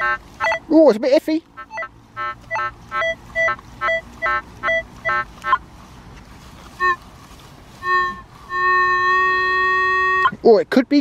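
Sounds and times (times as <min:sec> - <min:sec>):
metal detector steady tone: 0:00.0 - 0:00.7, 0:01.6 - 0:05.6, 0:06.8 - 0:07.0, 0:07.8 - 0:10.4
metal detector lower beeps: 0:00.4 - 0:00.7, 0:01.7 - 0:01.9, 0:02.5 - 0:05.2
metal detector short beeps: 0:00.4 - 0:00.7, 0:01.6 - 0:01.9, 0:02.5 - 0:05.2.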